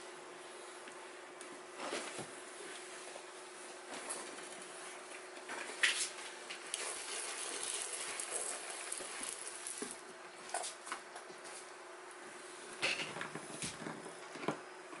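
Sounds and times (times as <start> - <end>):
spray bottle hissing squirts: 6.7 - 9.9
droplets pattering on bark: 6.7 - 10.0.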